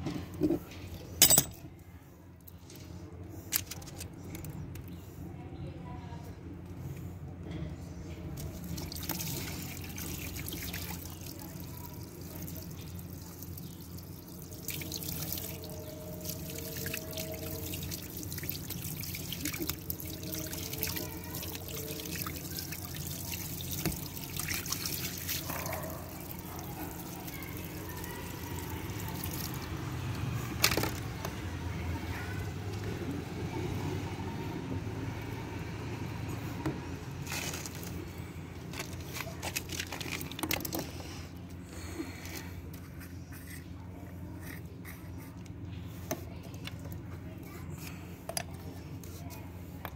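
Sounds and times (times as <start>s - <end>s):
water pouring into puddle: 8.4s - 30.2s.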